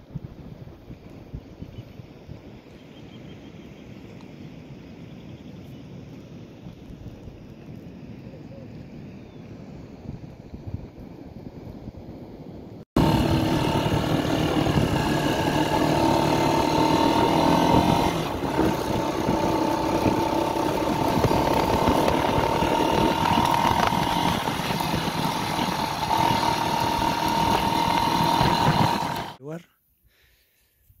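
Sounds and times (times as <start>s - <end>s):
soft wind: 0.0s - 31.0s
small motorcycle engine running: 13.0s - 29.4s.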